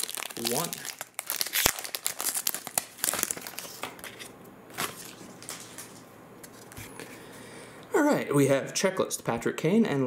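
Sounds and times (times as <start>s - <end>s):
foil wrapper tearing and crinkling: 0.0s - 5.8s.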